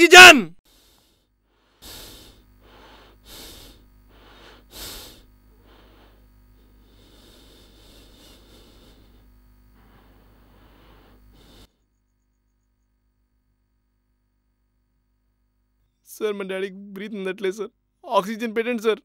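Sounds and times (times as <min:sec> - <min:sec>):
man gasping for breath: 0:00.7 - 0:11.7.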